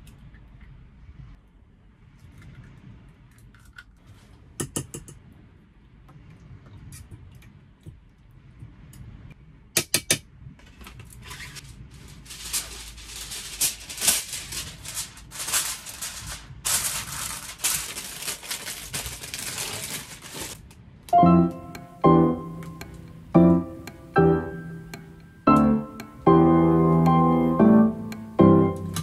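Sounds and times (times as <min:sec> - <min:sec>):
kitchen foil crinkling: 0:11.4 - 0:20.7.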